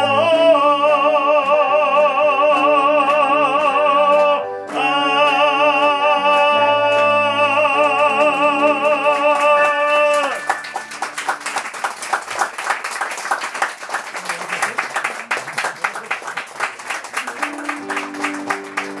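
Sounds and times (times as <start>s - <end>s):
man singing with vibrato: 0.0s - 10.6s
digital piano chords: 1.8s - 12.2s, 17.5s - 19.0s
audience applauding: 2.5s - 19.0s.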